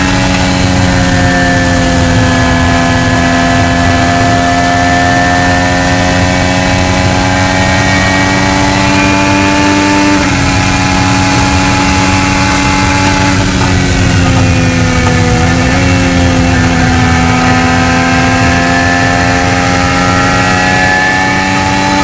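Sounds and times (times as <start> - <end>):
race car engine at high revs: 0.0 - 22.0.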